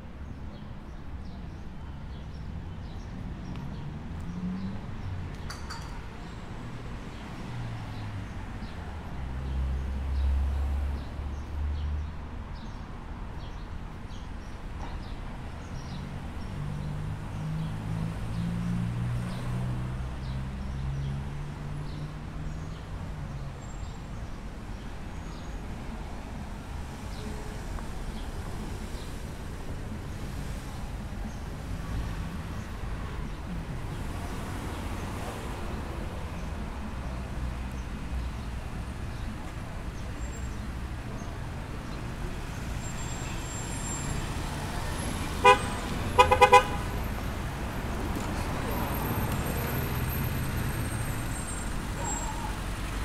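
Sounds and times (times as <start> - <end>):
vehicle engine humming: 43.4 - 53.0.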